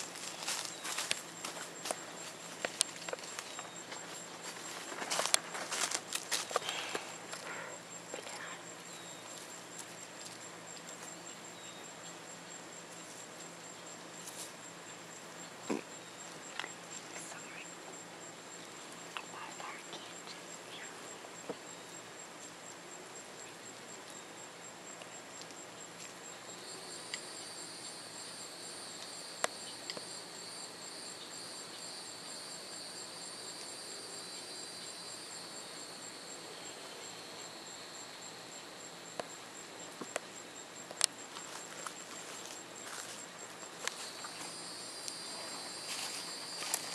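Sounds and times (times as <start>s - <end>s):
insect buzzing: 0.0s - 11.9s, 41.0s - 46.9s
cricket trilling: 0.0s - 46.9s.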